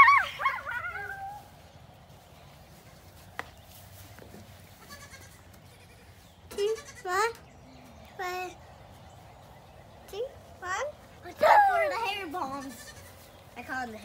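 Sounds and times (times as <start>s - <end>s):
goat kid bleating: 4.7s - 7.4s, 11.4s - 13.3s.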